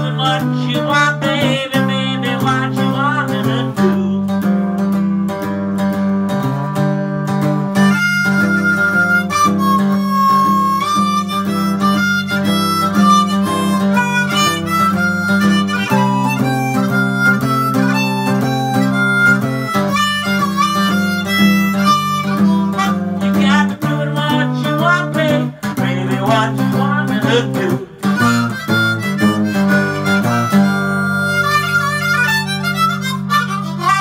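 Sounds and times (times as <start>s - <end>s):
guitar picking low riff: 0.0s - 34.0s
harmonica long notes: 7.4s - 34.0s.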